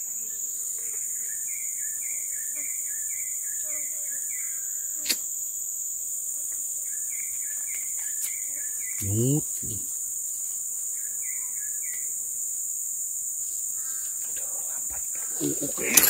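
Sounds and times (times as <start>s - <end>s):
person humming: 9.0s - 9.9s, 14.4s - 16.0s
high-pitched insect drone: 10.9s - 16.0s.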